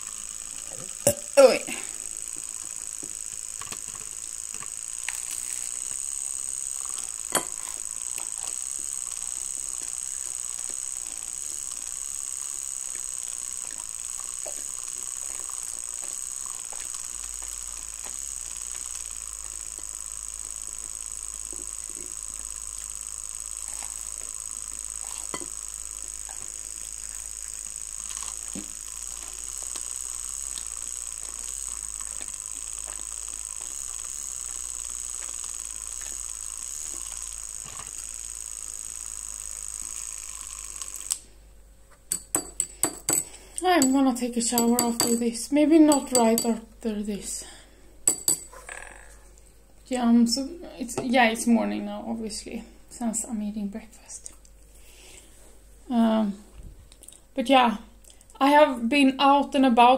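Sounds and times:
milk frother whining: 0:00.0 - 0:41.4, 0:42.0 - 0:46.6.

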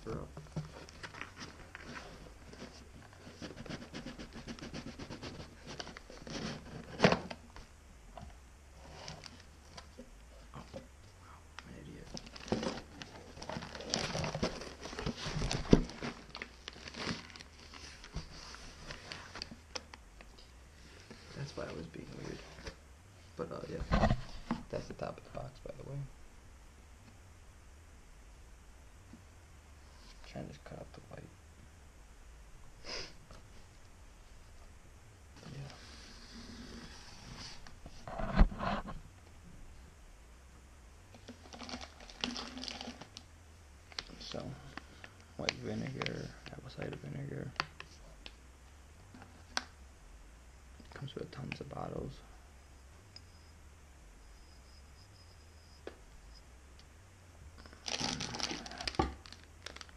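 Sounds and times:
plastic packing crinkling: 0:12.0 - 0:20.0, 0:41.1 - 0:43.2, 0:57.6 - 0:59.9
cardboard box and plastic handling: 0:12.1 - 0:19.9, 0:41.1 - 0:43.2, 0:57.6 - 0:59.9.

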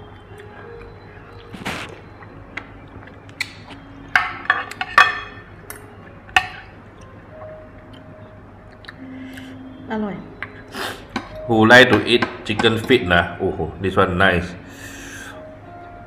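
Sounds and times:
cutlery clinking on glass bowl: 0:04.1 - 0:05.4.

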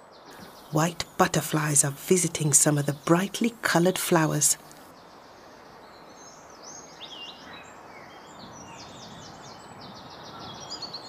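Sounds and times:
songbirds chirping and trilling: 0:00.0 - 0:11.0
steady background hiss: 0:00.1 - 0:08.8.

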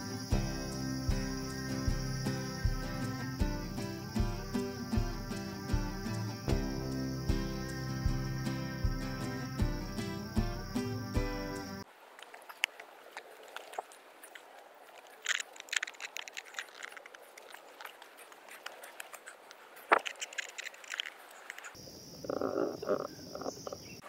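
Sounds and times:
high insect buzz: 0:00.0 - 0:11.8, 0:19.9 - 0:24.0
twig snapping: 0:12.1 - 0:21.8
footsteps on dirt trail: 0:12.2 - 0:21.8.

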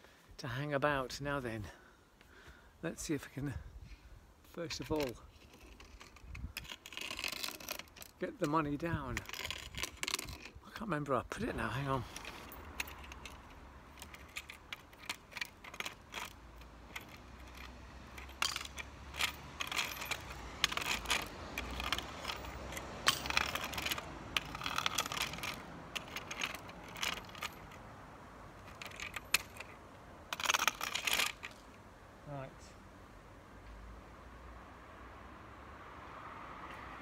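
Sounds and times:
metal grabber scraping on stone: 0:04.6 - 0:10.6, 0:11.4 - 0:27.8, 0:28.6 - 0:31.6
coins clinking: 0:12.1 - 0:27.8.

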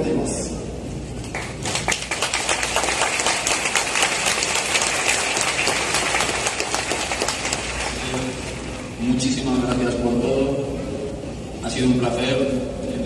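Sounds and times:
stadium crowd applauding: 0:01.2 - 0:08.8.

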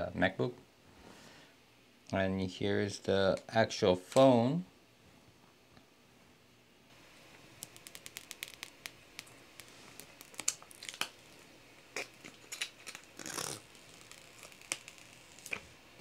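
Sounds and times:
plastic film peeling and crinkling: 0:07.6 - 0:15.7.

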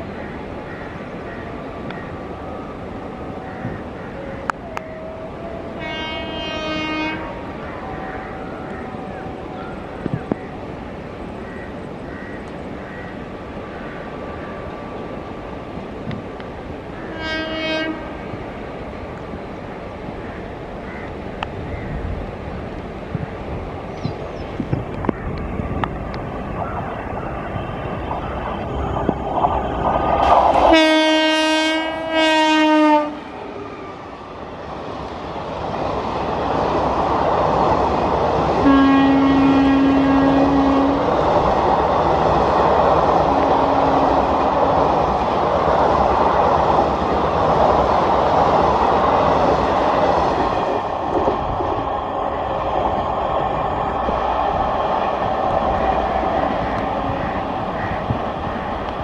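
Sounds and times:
locomotive horn blasts: 0:04.8 - 0:07.4, 0:17.1 - 0:18.2, 0:30.7 - 0:33.3, 0:38.6 - 0:41.0
train wheels rumbling and clacking: 0:21.2 - 0:33.2, 0:34.3 - 0:59.0.

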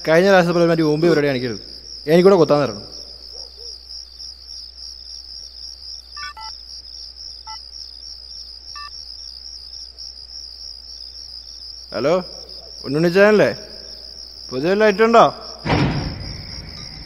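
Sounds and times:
crickets chirring: 0:00.0 - 0:17.0
phone keypad beeps: 0:06.2 - 0:06.5.

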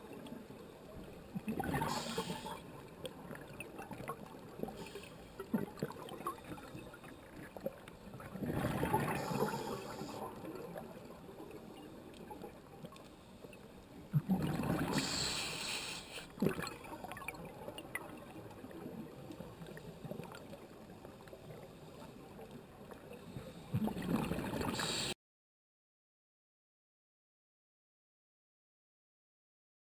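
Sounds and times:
low hiss: 0:00.0 - 0:03.3, 0:14.8 - 0:17.7
exhaled bubbles gushing underwater: 0:01.3 - 0:12.6, 0:14.1 - 0:15.2, 0:16.4 - 0:20.7, 0:23.8 - 0:25.0
faint clicks: 0:11.5 - 0:14.0.

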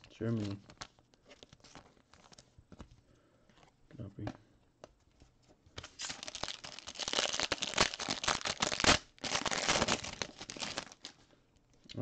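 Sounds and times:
foil wrapper tearing and crinkling: 0:05.8 - 0:11.2.

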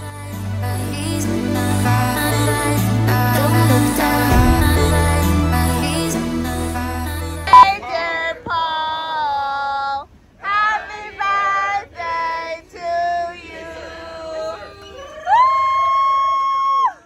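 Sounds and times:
high voice singing: 0:00.0 - 0:07.8.

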